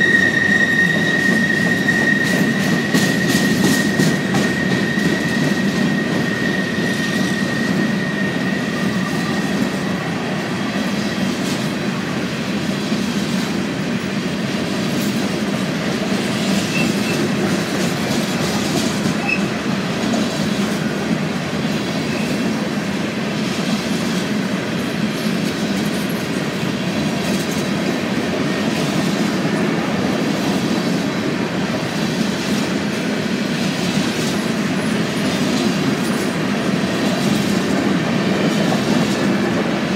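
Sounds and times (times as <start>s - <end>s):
high wheel squeal: 0.0s - 10.2s, 16.4s - 17.4s, 18.5s - 19.6s
freight train cars rolling: 0.0s - 39.9s.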